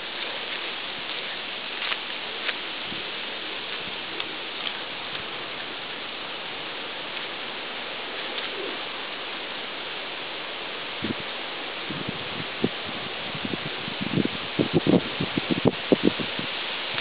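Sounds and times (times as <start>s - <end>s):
steady hiss: 0.0s - 17.0s
faint ticks: 0.1s - 3.0s, 3.7s - 5.7s.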